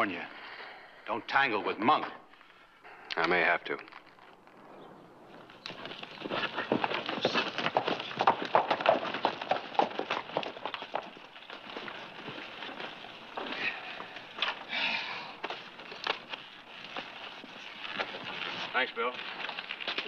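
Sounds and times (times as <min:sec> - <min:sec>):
hoofbeats of galloping horses: 0:05.3 - 0:20.0.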